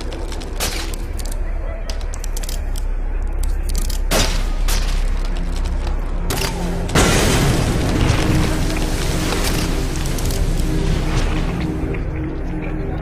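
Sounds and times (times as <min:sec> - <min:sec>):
loud crash and crumbling: 0:06.8 - 0:11.9.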